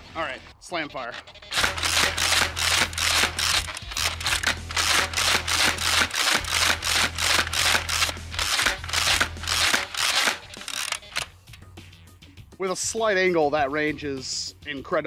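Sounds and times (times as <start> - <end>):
toy blaster plastic clacks: 1.5 - 11.3.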